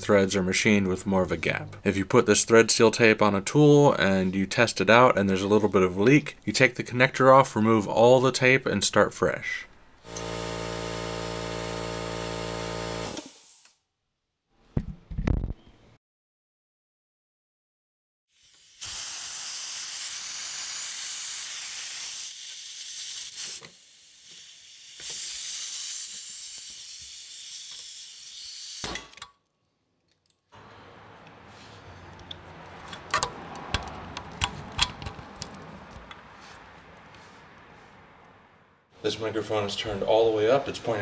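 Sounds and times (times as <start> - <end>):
compressed air hissing from fitting: 13.0 - 13.7, 18.3 - 28.9.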